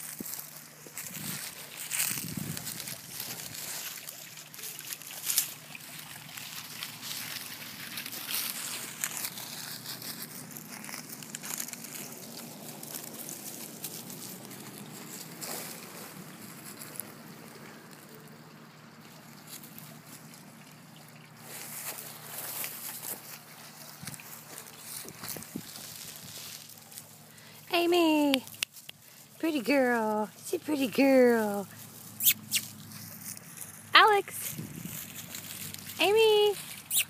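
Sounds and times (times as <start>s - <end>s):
dry leaves rustling and crackling: 0.0s - 37.0s.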